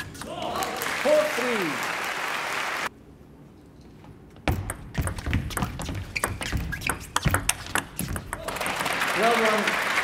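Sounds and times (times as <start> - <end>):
applause: 0.6 - 2.9, 8.5 - 10.0.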